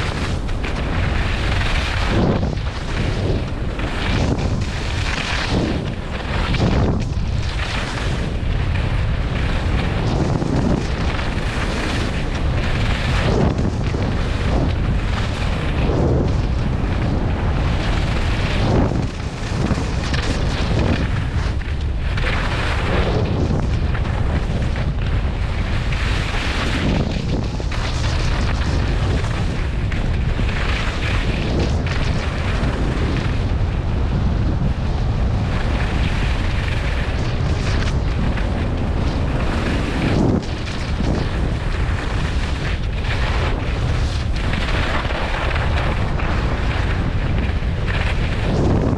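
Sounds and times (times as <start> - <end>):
skis scraping packed snow: 0.0 - 48.9
wind rumble on microphone: 0.0 - 48.9.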